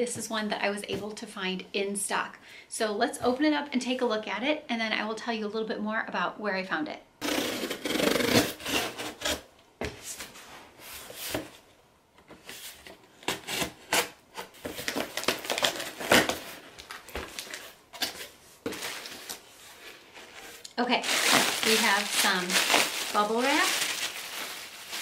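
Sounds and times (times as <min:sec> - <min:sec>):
box cutter slicing tape: 0:07.2 - 0:09.4.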